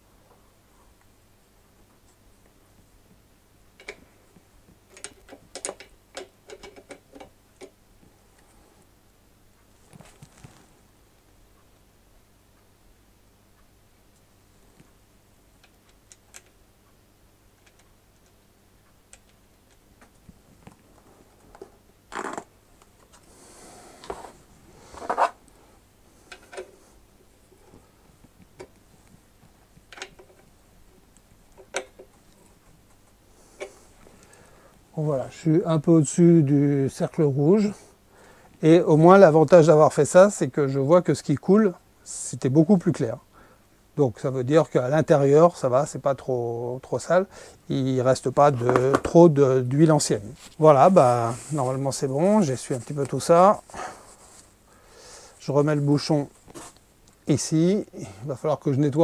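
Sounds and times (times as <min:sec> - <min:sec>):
knocks and clicks of handling: 0:03.8 - 0:07.8, 0:28.2 - 0:30.5.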